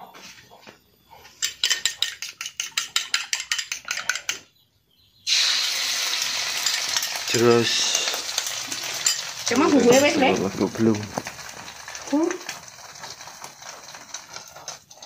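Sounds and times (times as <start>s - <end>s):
spoon beating egg in bowl: 1.4s - 4.4s
egg sizzling in wok: 5.3s - 15.0s.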